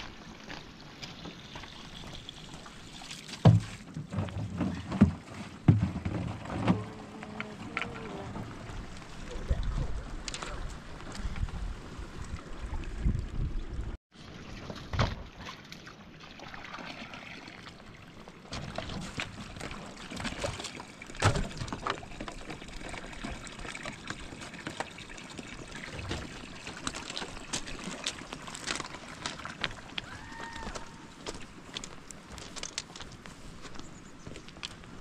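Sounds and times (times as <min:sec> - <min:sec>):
water trickling and pouring: 0:00.0 - 0:05.5, 0:06.4 - 0:30.1.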